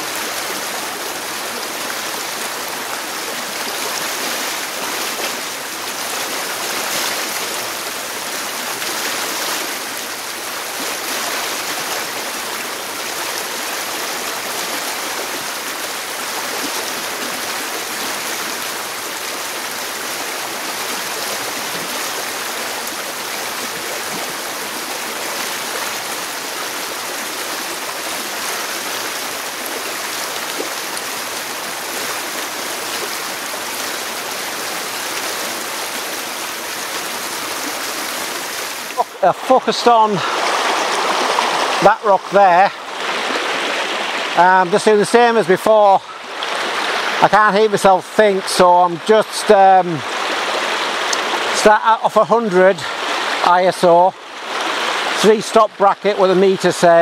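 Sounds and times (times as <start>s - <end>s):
stream rushing over stones: 0.0s - 57.0s.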